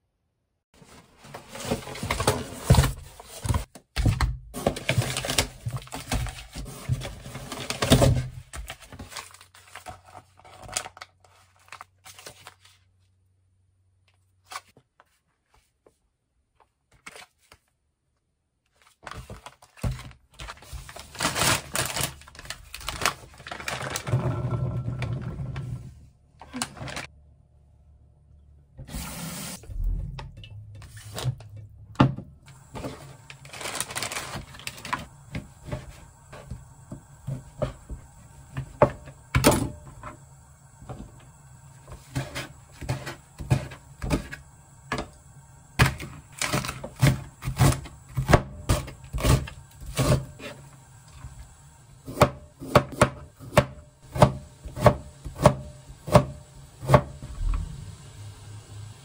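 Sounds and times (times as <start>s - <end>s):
plastic packets crinkling: 18.7s - 24.1s, 32.5s - 35.3s.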